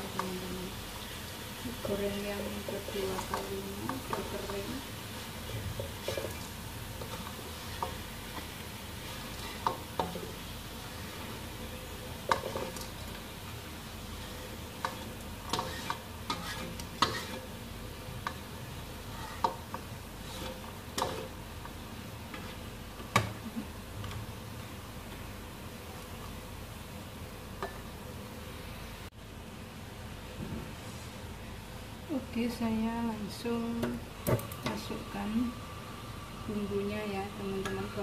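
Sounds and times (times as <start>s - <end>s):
spatula scraping and knocking wok: 0.0s - 24.3s
oil sizzling: 0.0s - 30.4s, 31.2s - 38.0s.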